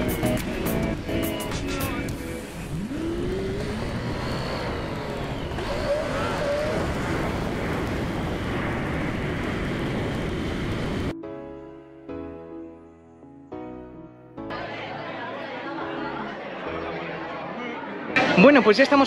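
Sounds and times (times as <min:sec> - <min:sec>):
music: 0:00.0 - 0:03.3, 0:10.9 - 0:19.0
vehicle in motion rushing: 0:02.0 - 0:11.1.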